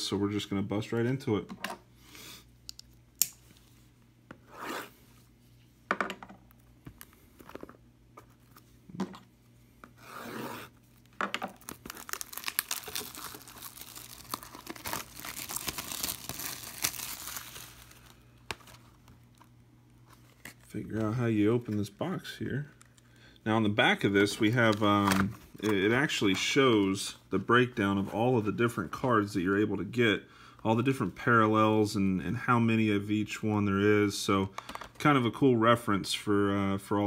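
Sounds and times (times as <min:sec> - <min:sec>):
plastic wrap tearing and crinkling: 0:10.9 - 0:19.4.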